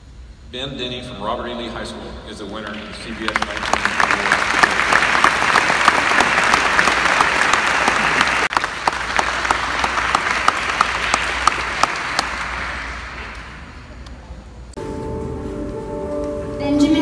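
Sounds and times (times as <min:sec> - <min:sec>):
audience applauding: 0:02.6 - 0:14.2.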